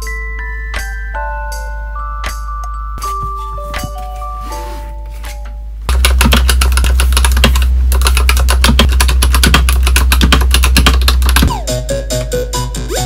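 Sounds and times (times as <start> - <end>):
background music: 0.0 - 7.6, 8.7 - 13.0
typing on mechanical keyboard: 5.9 - 11.5.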